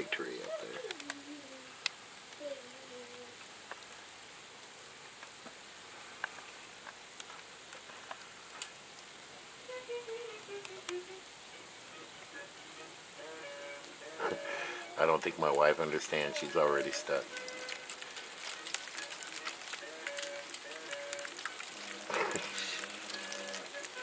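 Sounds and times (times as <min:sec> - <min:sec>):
faint voice: 0:00.0 - 0:01.8, 0:02.4 - 0:03.4, 0:22.1 - 0:23.0.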